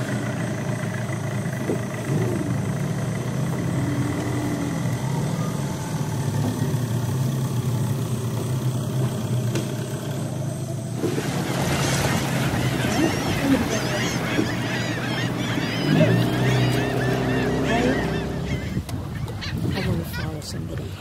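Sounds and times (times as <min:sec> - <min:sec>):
boat motor humming: 0:00.0 - 0:21.0.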